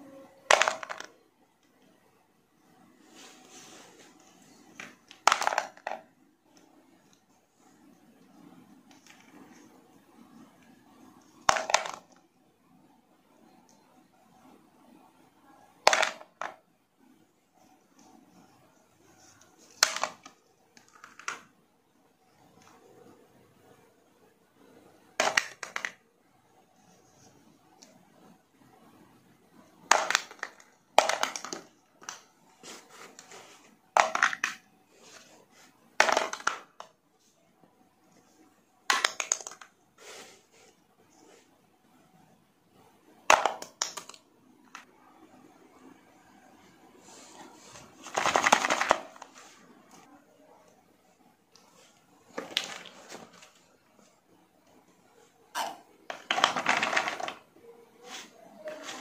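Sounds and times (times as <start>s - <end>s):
plastic toys rustling: 0.4s - 1.2s, 2.7s - 12.2s, 17.6s - 21.6s, 25.0s - 26.0s, 29.6s - 37.3s, 38.0s - 41.6s, 43.2s - 44.9s, 47.0s - 50.1s, 51.5s - 59.0s
plastic toys scraping and knocking: 0.4s - 1.2s, 2.7s - 12.3s, 15.8s - 21.6s, 24.6s - 26.0s, 29.6s - 37.3s, 38.1s - 41.6s, 42.8s - 44.9s, 47.0s - 50.1s, 51.5s - 59.0s
small pieces rattling against plastic: 29.8s - 32.2s, 48.0s - 49.2s, 56.1s - 57.5s.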